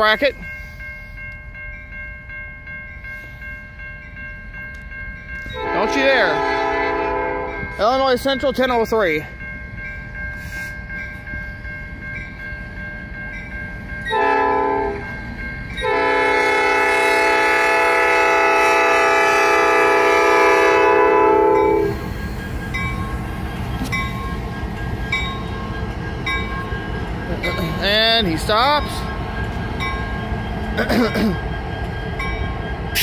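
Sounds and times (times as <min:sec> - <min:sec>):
crossing bell dinging: 0:00.0 - 0:33.0
locomotive engine and wheels rumbling: 0:00.0 - 0:33.0
locomotive air horn: 0:05.6 - 0:07.6, 0:14.1 - 0:15.0, 0:15.8 - 0:22.0.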